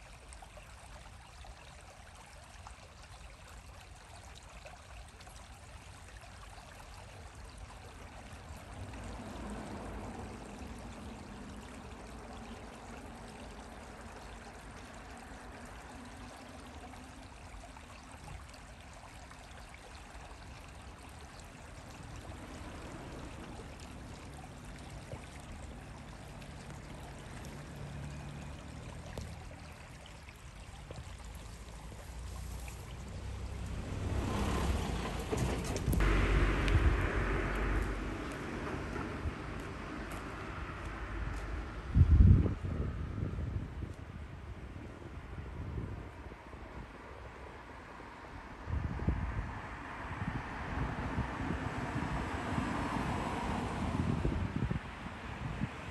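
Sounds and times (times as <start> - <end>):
steady rushing outdoor noise: 7.8 - 17.4, 20.2 - 55.9
low rumble: 33.0 - 43.8.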